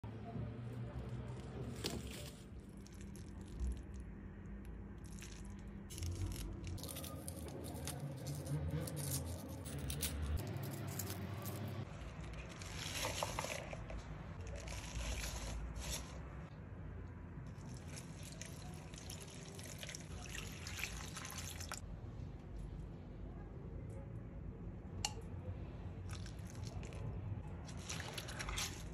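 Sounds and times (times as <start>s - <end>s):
leaves clicking and rustling: 5.0s - 13.8s
water splashing into plastic bowl: 18.2s - 21.8s.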